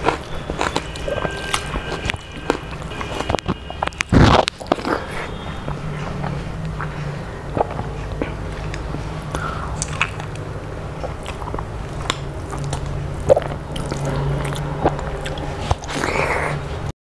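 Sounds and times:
chewing with crunchy clicks: 0:00.0 - 0:16.6
steady low hum: 0:00.0 - 0:16.9.

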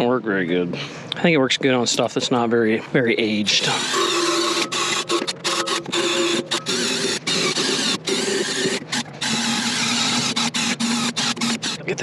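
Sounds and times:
cordless drill wire brush whirring: 0:03.5 - 0:12.0.

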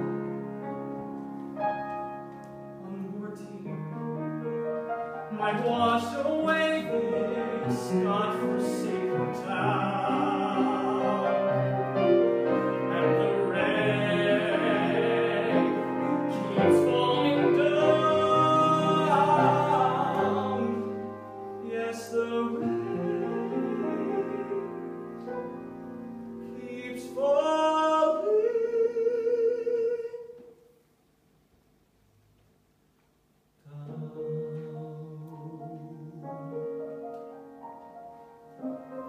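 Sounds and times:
young man singing ballad: 0:02.8 - 0:04.0, 0:05.3 - 0:11.8, 0:12.9 - 0:21.0, 0:21.6 - 0:24.6, 0:26.5 - 0:30.4, 0:33.6 - 0:36.5.

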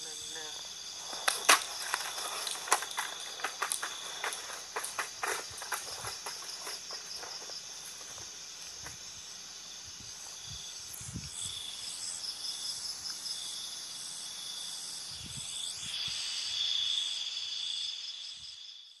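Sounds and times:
insects trilling: 0:00.0 - 0:19.0
soft footsteps: 0:01.0 - 0:09.1.

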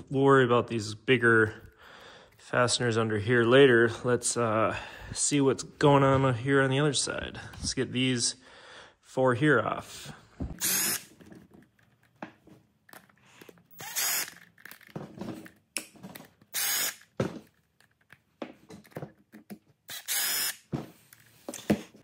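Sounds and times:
cordless driver running: 0:10.6 - 0:11.1, 0:13.7 - 0:14.5, 0:16.5 - 0:17.1, 0:19.9 - 0:20.6.

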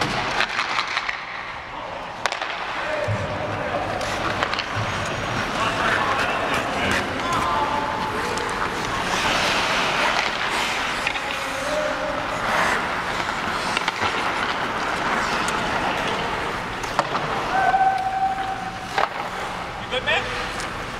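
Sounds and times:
hockey sticks and puck clacking: 0:00.0 - 0:20.9
skates scraping on ice: 0:02.2 - 0:20.9.

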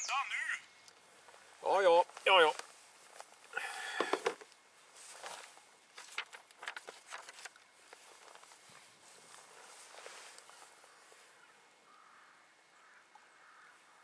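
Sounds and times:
clothing rustling and clicks: 0:04.1 - 0:10.8.

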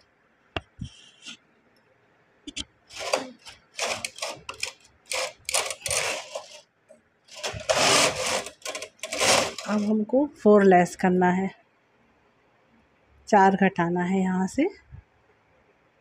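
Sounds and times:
knitting carriage rasping and clattering: 0:02.9 - 0:06.6, 0:07.3 - 0:10.0
knitting machine clicks: 0:02.9 - 0:06.6, 0:07.3 - 0:10.0.

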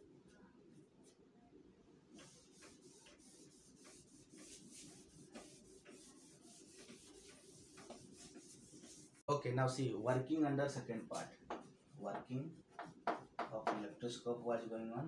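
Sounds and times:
eraser rubbing chalkboard: 0:02.1 - 0:09.2, 0:10.9 - 0:14.2.

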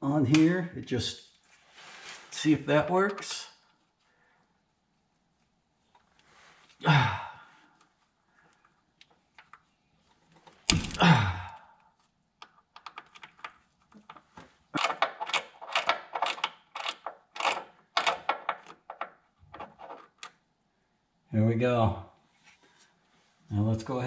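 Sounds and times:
ratchet clicking: 0:14.8 - 0:18.4.

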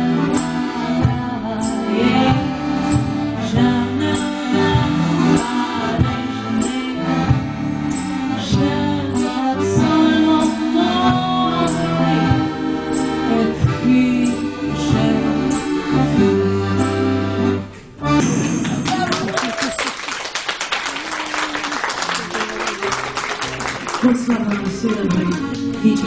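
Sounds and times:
woman singing: 0:00.0 - 0:07.4, 0:08.2 - 0:16.6
accordion: 0:00.0 - 0:18.5, 0:22.1 - 0:26.0.

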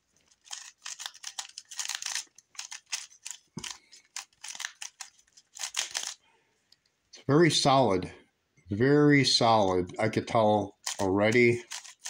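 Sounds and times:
plastic puzzle cube clicking: 0:00.3 - 0:06.2, 0:10.8 - 0:12.0.

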